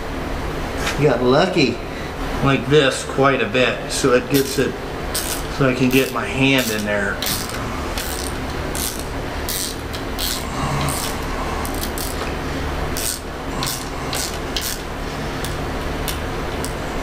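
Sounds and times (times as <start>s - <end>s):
steady low hum: 0.0s - 17.0s
socket ratchet clicking: 5.2s - 12.2s, 13.0s - 16.8s.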